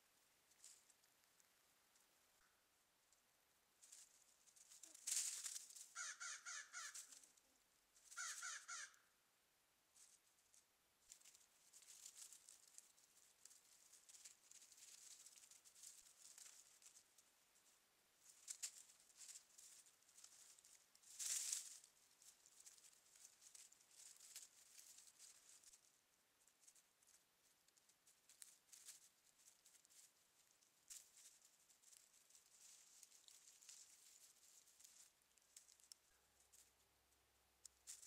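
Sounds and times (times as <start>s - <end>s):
rustling in dry leaves: 3.8s - 8.9s, 10.0s - 36.8s, 37.8s - 38.0s
crow wings flapping: 3.9s - 7.3s, 8.0s - 9.0s
crows cawing: 5.8s - 7.2s, 8.0s - 9.1s.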